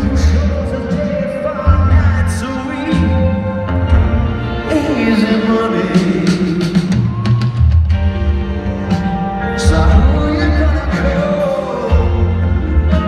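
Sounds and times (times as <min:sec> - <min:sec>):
man singing lead vocal: 0:00.0 - 0:03.9, 0:04.5 - 0:07.3, 0:09.5 - 0:13.0
live rock band playing: 0:00.0 - 0:13.0.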